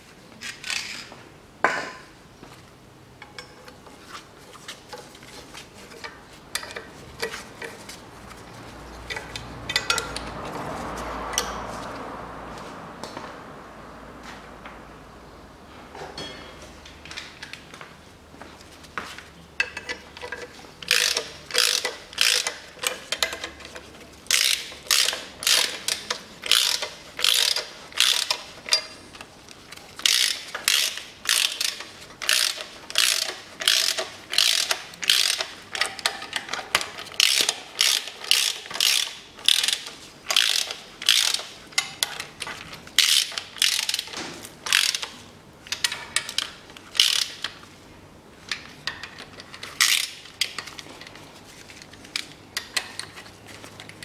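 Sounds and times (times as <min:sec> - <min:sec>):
socket ratchet clicking: 0:19.6 - 0:29.0, 0:30.0 - 0:47.6, 0:48.5 - 0:50.8.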